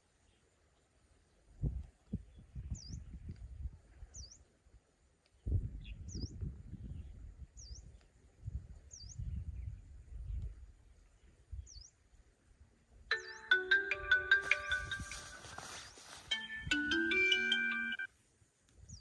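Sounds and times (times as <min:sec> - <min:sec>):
bird chirping: 0:13.1 - 0:18.1
phone ringtone melody: 0:13.1 - 0:18.1.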